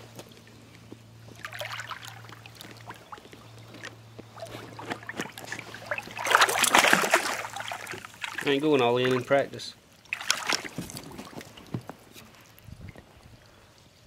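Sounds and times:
fish splashing at water surface: 1.3s - 9.4s, 10.0s - 11.8s.

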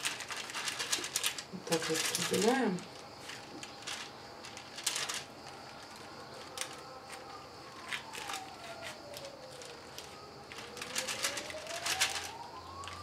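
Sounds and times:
faint siren: 4.9s - 13.0s.

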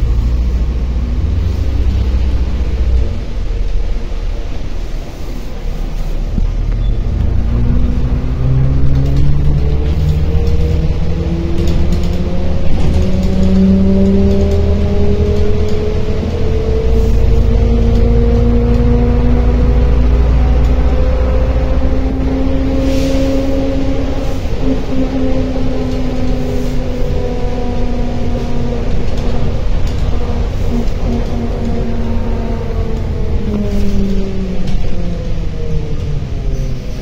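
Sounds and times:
diesel bus engine rumble: 0.0s - 37.0s
rising drivetrain whine: 0.0s - 37.0s.

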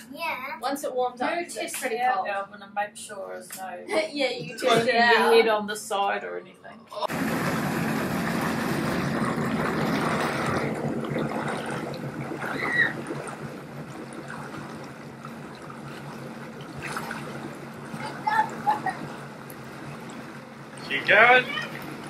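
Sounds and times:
jet pump water rushing: 7.1s - 22.0s
low engine hum: 7.1s - 22.0s.

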